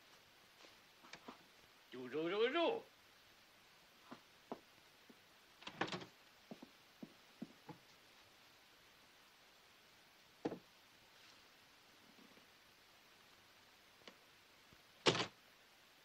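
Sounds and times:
footsteps: 0.0 - 1.6, 4.0 - 5.2, 6.4 - 8.4
film soundtrack hiss: 0.0 - 16.0.

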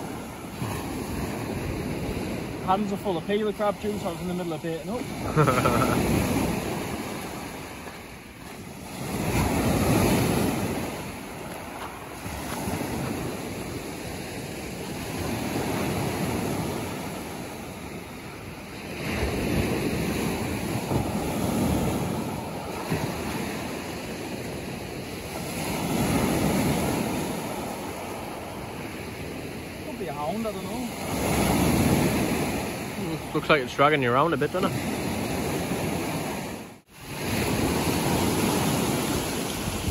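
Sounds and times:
surf breaking on beach: 0.0 - 39.9
wind buffeting microphone: 34.6 - 39.9.

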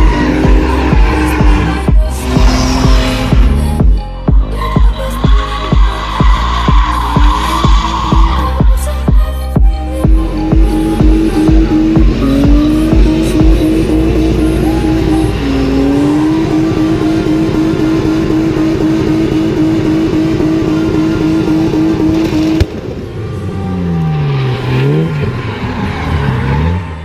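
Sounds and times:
engine revving up and down: 0.0 - 4.2, 10.1 - 23.0, 23.7 - 27.0
car engine at high revs: 0.0 - 9.3, 10.0 - 27.0.

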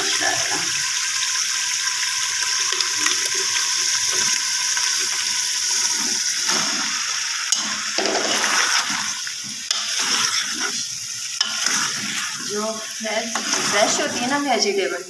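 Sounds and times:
food sizzling in a pot: 0.0 - 15.0
vegetable pieces tumbling into pot: 5.7 - 14.7
steel spoon stirring: 7.5 - 14.5.

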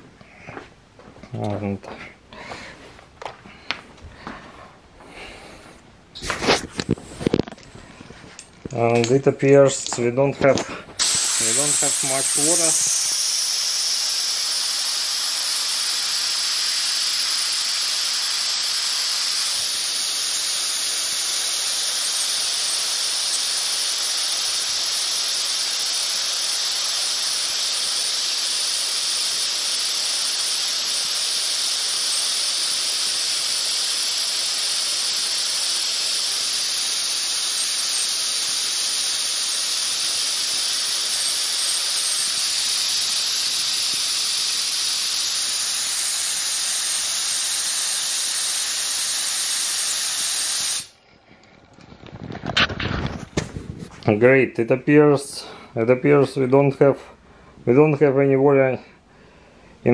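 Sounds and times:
compressed air hissing: 5.1 - 6.7, 10.5 - 51.0.

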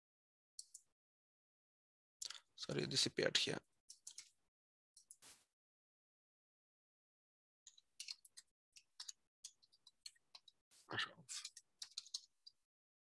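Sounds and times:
computer keyboard typing: 3.9 - 4.3, 7.7 - 10.6, 11.3 - 12.6.

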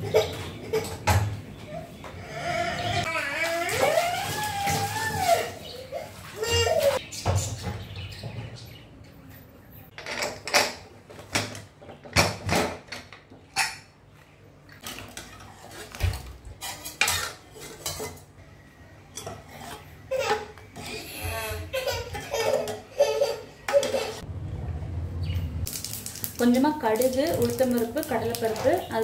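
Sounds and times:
metal utensils and pots clinking: 14.8 - 18.4, 19.0 - 24.2, 25.7 - 29.0.

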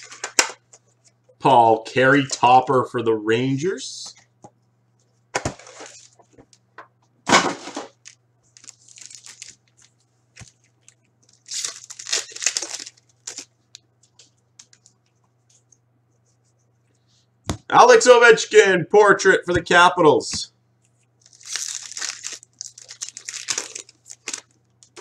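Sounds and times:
card packs tearing and crinkling: 7.5 - 13.5, 21.2 - 25.0.

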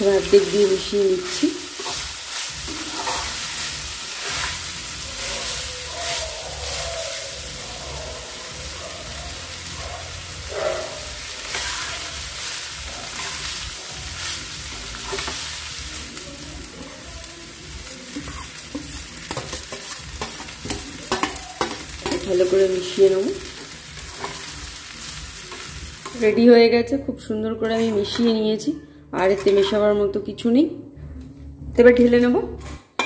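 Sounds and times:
metal spatula scraping a pan: 0.0 - 8.4, 10.6 - 15.6, 18.1 - 26.4, 27.5 - 30.0
light sizzle: 0.0 - 26.5.

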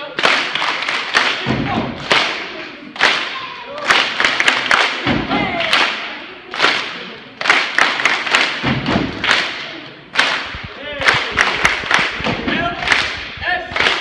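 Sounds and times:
hand claps: 0.2 - 14.0
stomps: 4.0 - 6.0, 6.6 - 14.0.

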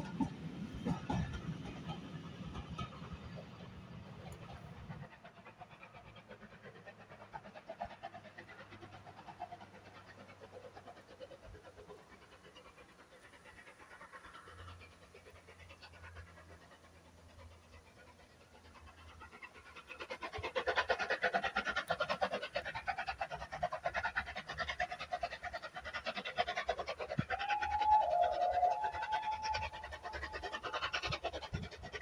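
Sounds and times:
steam locomotive chuffing: 0.0 - 32.0
train whistle: 27.3 - 30.6.

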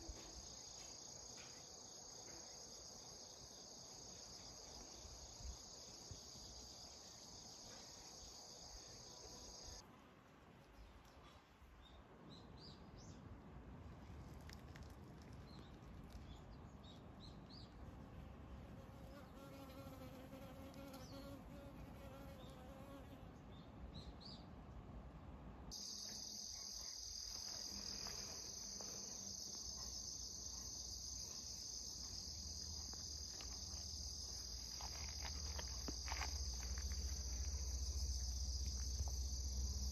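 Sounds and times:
crickets chirping: 0.0 - 9.8, 25.7 - 39.9.

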